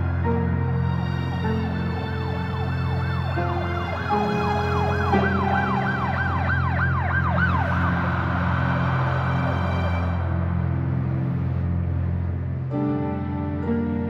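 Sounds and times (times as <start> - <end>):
low dark music drone: 0.0 - 14.0
emergency siren yelping: 0.8 - 10.5.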